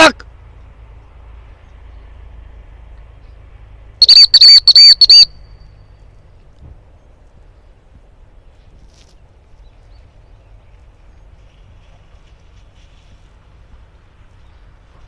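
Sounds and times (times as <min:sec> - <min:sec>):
dog whistle blasts: 0:04.0 - 0:05.3.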